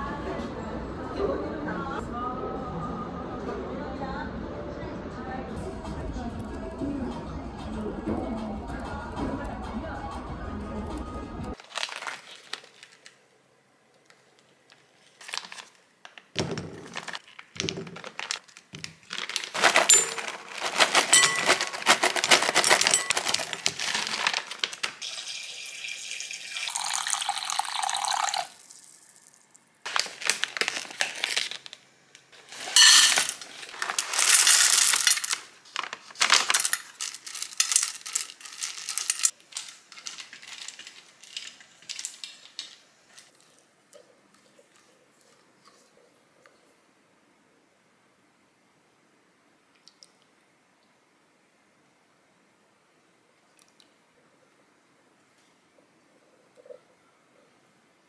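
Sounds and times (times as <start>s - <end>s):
frozen rice cake clattering into glass bowl: 11.6s - 13.1s, 16.5s - 25.0s, 32.4s - 42.8s
tap water running into bowl: 25.0s - 28.6s.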